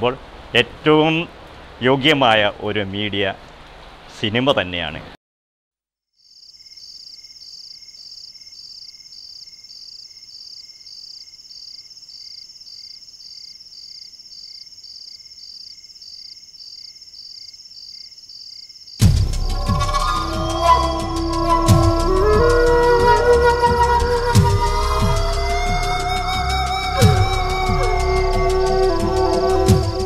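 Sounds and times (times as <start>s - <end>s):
crickets chirping: 6.2s - 30.0s.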